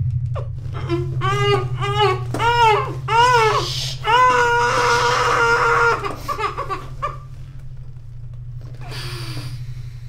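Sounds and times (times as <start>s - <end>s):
steady low hum: 0.0s - 10.0s
high-pitched wailing cry: 0.8s - 7.2s.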